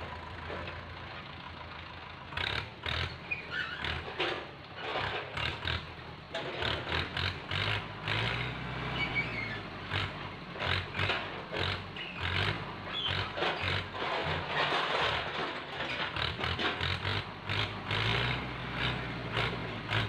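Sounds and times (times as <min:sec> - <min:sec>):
tractor diesel engine running: 0:00.0 - 0:20.0
knocks and scrapes: 0:02.9 - 0:20.0.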